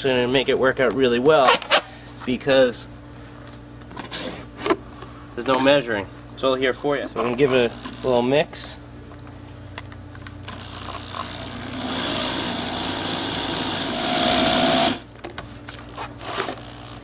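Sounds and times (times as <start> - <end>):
electric drill mixing in a plastic bucket: 10.5 - 15.1.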